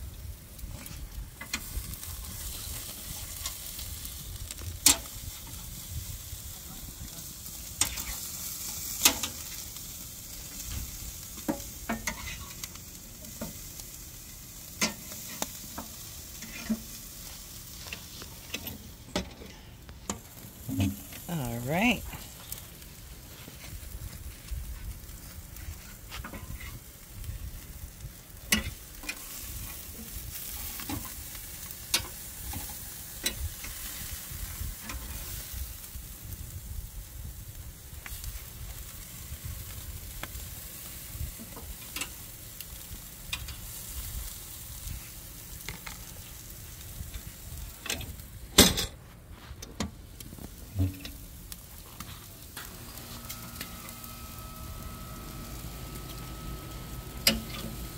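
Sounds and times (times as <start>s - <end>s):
steaks sizzling on a grill: 0.0s - 57.9s
metal tongs clicking on grate: 57.2s - 57.7s.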